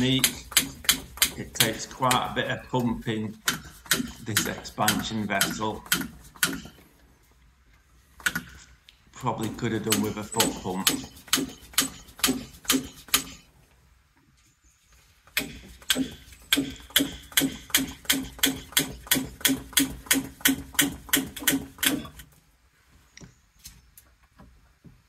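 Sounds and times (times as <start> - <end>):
hand air pump strokes: 0.0 - 6.8, 9.4 - 13.4, 15.3 - 22.2.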